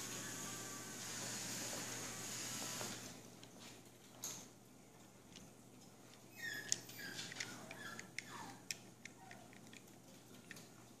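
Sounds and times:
claws clicking on hardwood floor: 5.2s - 10.8s
puppy squeaking and whimpering: 6.3s - 9.6s.

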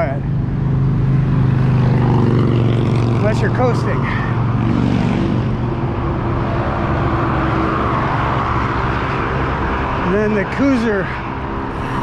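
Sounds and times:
traffic and wind hiss: 10.9s - 12.0s.

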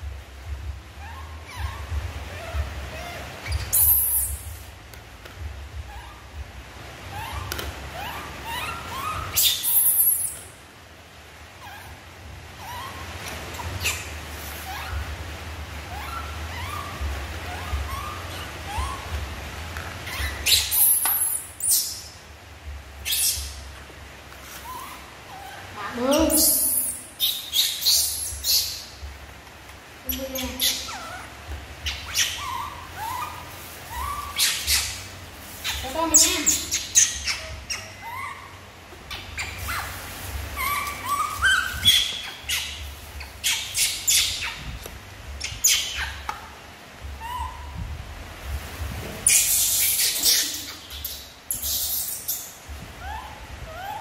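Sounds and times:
low steady hum: 0.0s - 54.0s
monkeys squeaky calls: 0.9s - 4.7s, 5.7s - 10.6s, 11.6s - 22.2s, 23.0s - 23.8s, 24.4s - 29.1s, 30.0s - 47.9s, 49.2s - 54.0s.

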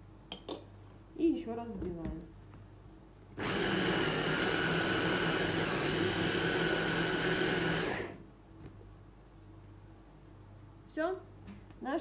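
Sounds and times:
hand blender motor whining: 3.4s - 8.2s.

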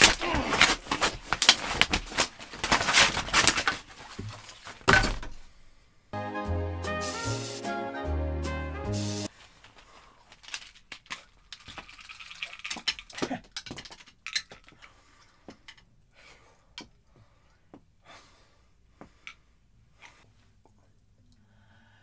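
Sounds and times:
hands clicking and rustling: 0.0s - 4.9s, 9.3s - 15.9s.

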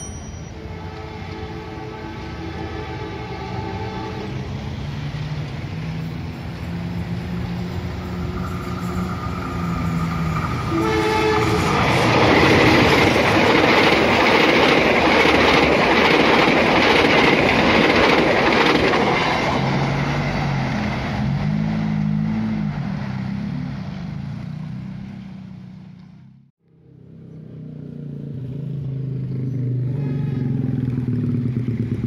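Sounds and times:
train rumble passing: 0.0s - 32.0s
train horn: 0.4s - 4.6s, 10.6s - 13.0s, 29.8s - 30.8s
motorcycle engines revving: 21.2s - 32.0s.

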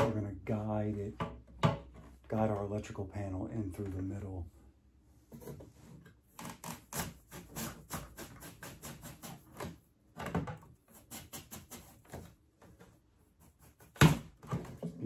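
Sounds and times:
plastic and metal clicking and knocking: 9.6s - 10.8s.

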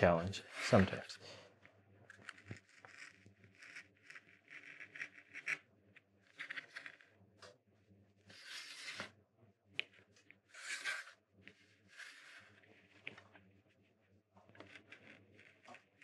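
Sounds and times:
knife scratching plywood: 0.4s - 1.0s, 2.1s - 5.6s, 6.3s - 7.0s, 8.3s - 9.1s, 10.5s - 13.0s, 14.5s - 16.0s.

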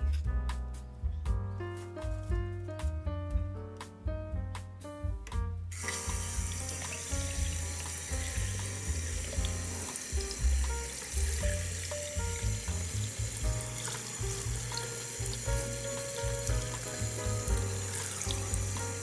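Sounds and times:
background music: 0.0s - 19.0s
tap water running onto broccoli: 5.7s - 19.0s.

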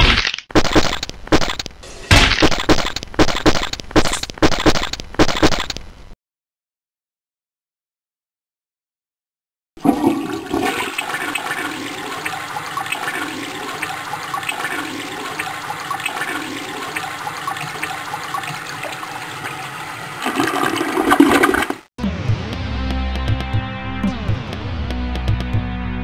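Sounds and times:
toilet flushing: 9.8s - 21.9s.

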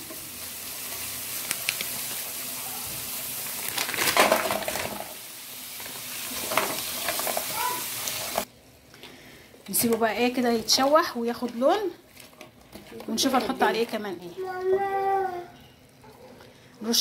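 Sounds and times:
shrimp sizzling loudly: 0.0s - 8.5s
garlic and peppers sizzling in pan: 0.0s - 12.0s.

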